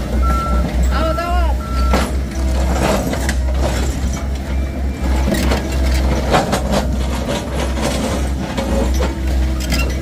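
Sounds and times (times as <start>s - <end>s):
truck engine rumbling: 0.0s - 10.0s
knocks and clatter: 5.2s - 10.0s.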